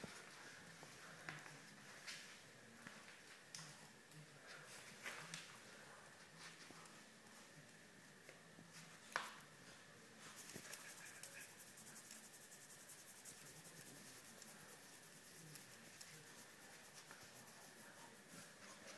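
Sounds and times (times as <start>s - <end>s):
hands scratching dog fur: 10.3s - 18.9s.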